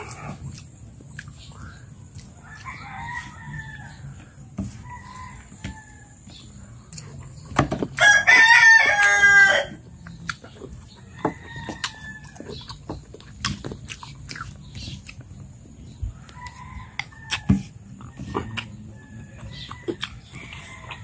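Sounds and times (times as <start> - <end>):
eating sounds: 0.0 - 5.6, 6.4 - 21.0
rooster crowing: 2.4 - 6.2, 8.0 - 9.8, 11.1 - 12.5, 16.2 - 21.0.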